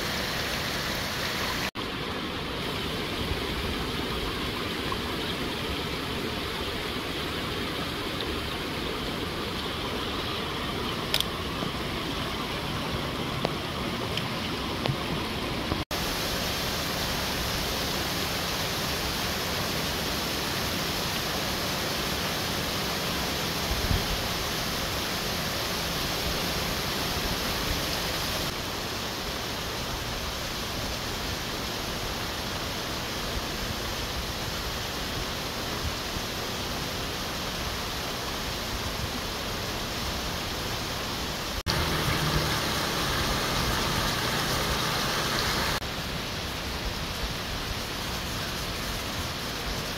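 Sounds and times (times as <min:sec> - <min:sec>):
waterfall and stream over rocks: 0:00.0 - 0:49.9.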